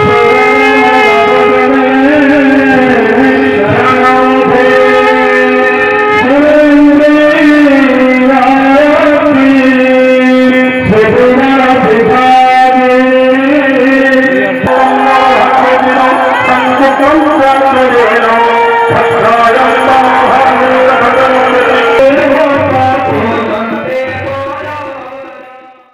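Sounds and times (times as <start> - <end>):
devotional instrumental music: 0.0 - 25.9.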